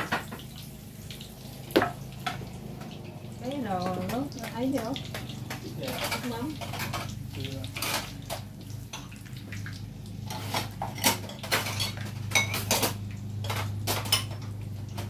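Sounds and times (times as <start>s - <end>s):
metal utensils clinking: 3.9s - 8.5s, 10.3s - 14.5s.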